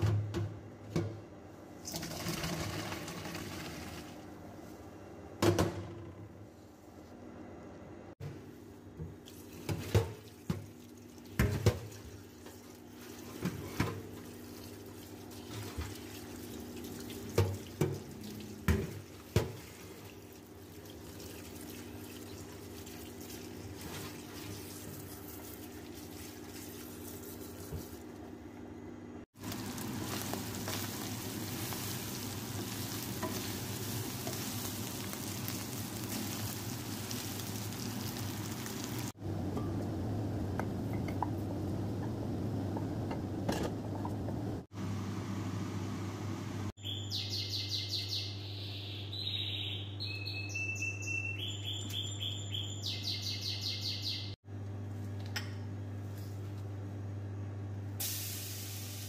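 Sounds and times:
tap water running into colander: 1.9s - 4.1s, 9.1s - 27.0s, 29.4s - 39.2s
chicken sizzling in a wok: 29.4s - 39.2s, 58.0s - 59.0s.

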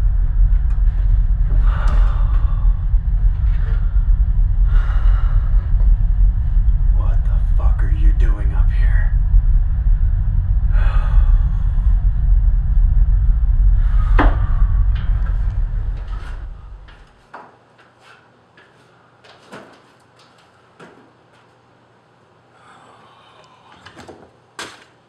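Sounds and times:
low rumbling drone: 0.0s - 17.2s.

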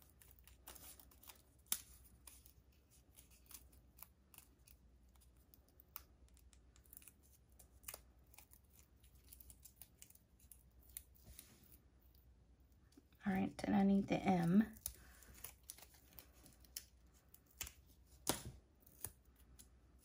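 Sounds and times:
stiff cardstock clicking and crinkling: 0.0s - 12.2s, 14.6s - 20.0s.

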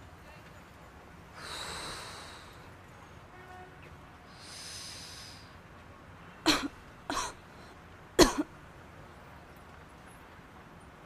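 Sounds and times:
person breathing in with a hiss: 1.4s - 2.7s, 4.3s - 5.6s
person coughing: 6.5s - 7.4s, 8.2s - 8.5s.

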